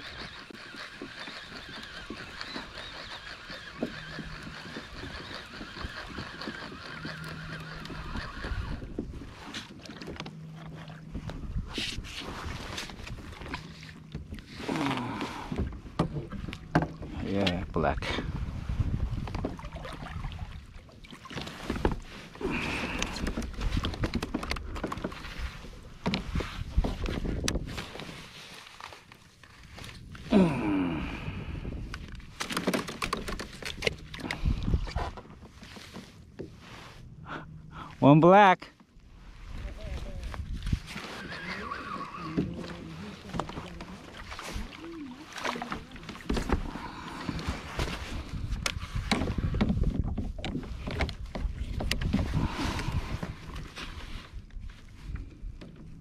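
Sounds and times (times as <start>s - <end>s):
fishing gear knocks and clicks: 0.0s - 12.1s, 22.6s - 28.1s, 31.8s - 36.1s, 42.3s - 53.7s
wind rumble on microphone: 4.0s - 14.4s, 15.3s - 20.8s, 21.7s - 28.2s, 29.7s - 32.4s, 33.2s - 35.2s, 39.0s - 45.0s, 46.1s - 56.0s.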